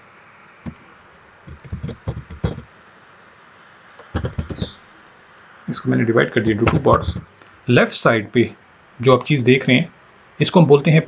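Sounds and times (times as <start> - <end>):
mouse and keyboard clicking: 1.5 - 2.7, 4.0 - 4.8, 6.5 - 7.2.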